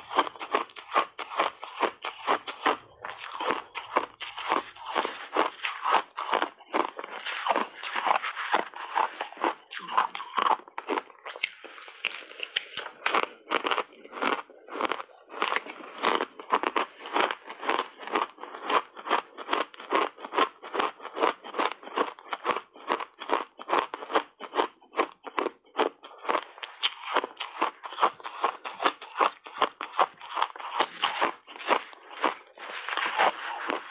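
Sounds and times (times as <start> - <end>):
ice crunching while chewed: 0.0 - 33.9.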